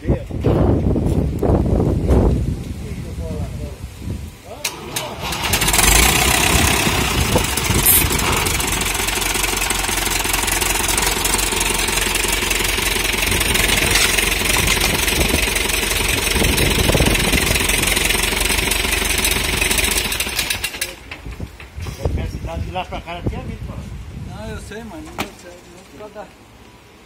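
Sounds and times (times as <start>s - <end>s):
tractor engine running: 4.7s - 21.8s.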